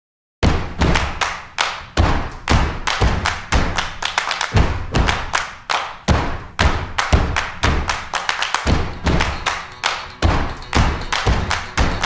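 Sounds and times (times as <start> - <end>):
heavy percussion thuds: 2.0 - 5.4, 6.1 - 12.0.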